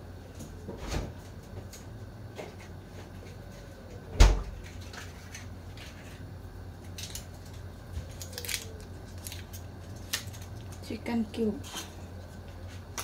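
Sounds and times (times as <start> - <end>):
steady low hum: 0.0 - 13.0
foil wrapper crinkling: 6.8 - 13.0.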